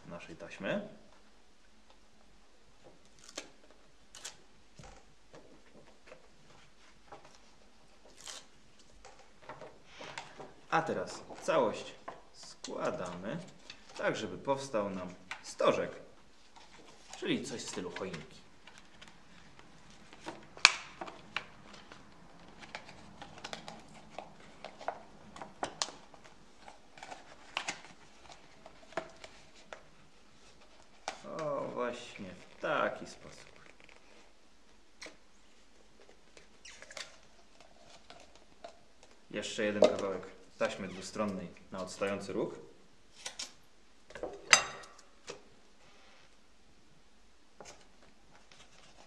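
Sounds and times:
tape backing peeling off: 3.1s - 4.4s, 36.4s - 38.4s.

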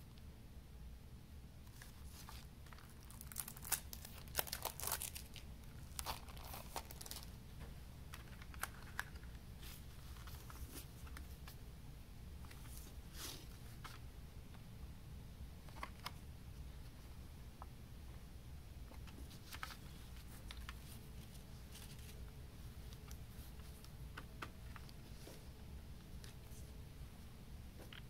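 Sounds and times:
plastic shrink wrap crinkling: 1.7s - 7.4s.

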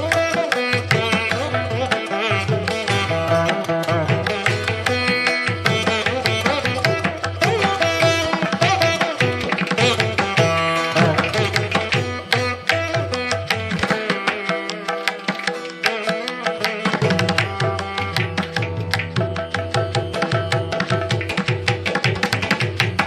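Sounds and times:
hand drum beat: 0.0s - 23.0s
plucked string melody: 0.0s - 23.0s.

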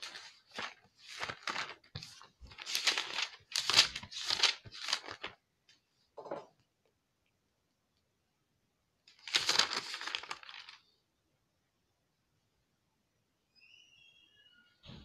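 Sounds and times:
pages rustling: 0.0s - 5.4s, 9.1s - 10.9s.

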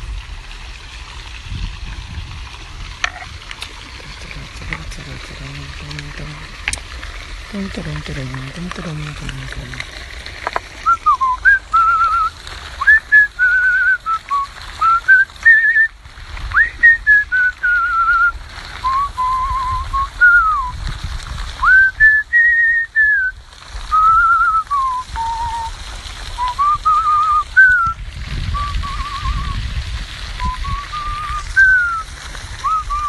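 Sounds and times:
man whistling a tune: 10.8s - 15.9s, 16.6s - 20.8s, 21.6s - 23.3s, 23.9s - 25.7s, 26.4s - 29.6s, 30.4s - 33.0s.

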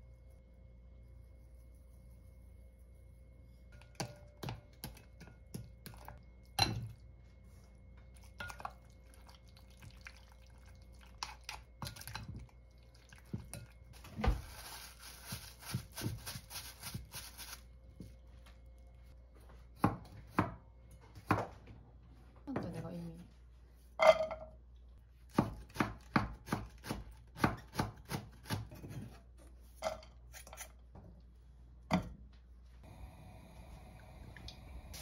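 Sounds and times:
wet squishing of meat: 8.6s - 13.8s.

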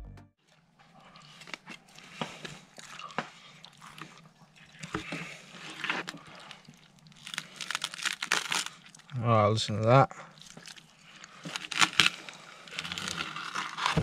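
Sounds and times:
knife sawing through crisp crackling: 7.2s - 8.9s, 10.5s - 14.0s.

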